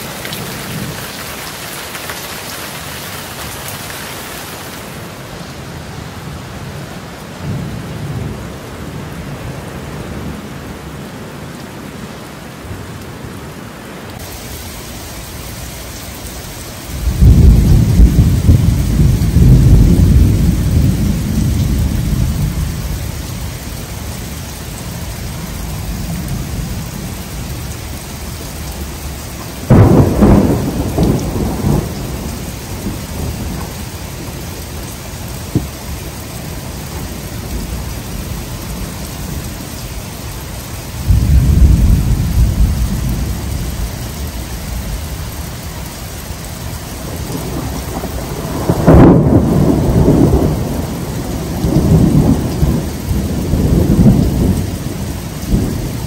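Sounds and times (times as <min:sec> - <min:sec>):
heavy rain on pavement: 0:00.0 - 0:56.0
low rumble of thunder: 0:16.8 - 0:24.2, 0:24.8 - 0:34.4, 0:40.9 - 0:45.6, 0:46.7 - 0:56.0
sharp thunderclap: 0:17.0 - 0:22.7, 0:29.6 - 0:33.7, 0:41.1 - 0:43.8, 0:47.3 - 0:56.0.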